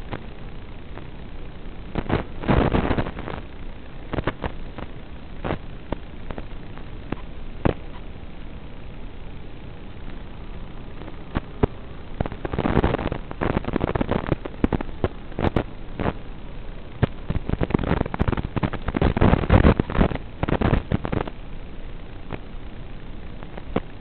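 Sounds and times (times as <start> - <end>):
sharp clicks and pops: 0.0 - 0.4, 1.9 - 8.1, 10.0 - 16.2, 16.9 - 21.4, 23.4 - 24.0
crackling static hiss: 0.0 - 24.0.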